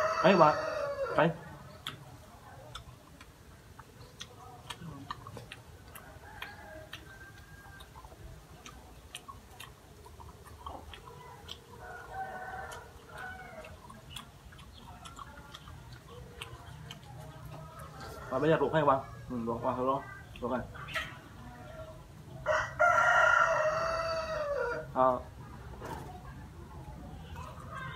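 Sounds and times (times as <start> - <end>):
rooster crowing: 0.0 - 1.3, 22.4 - 24.9
chickens clucking: 0.0 - 27.9.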